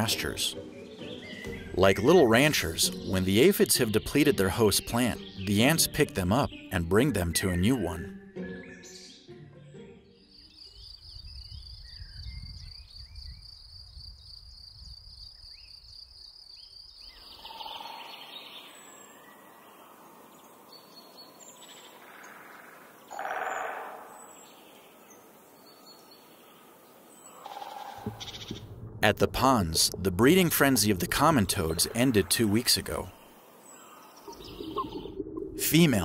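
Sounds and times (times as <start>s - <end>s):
birds chirping: 0.0s - 9.4s, 10.2s - 36.0s
faint outdoor hiss: 13.4s - 35.0s
low rumble: 28.0s - 32.2s.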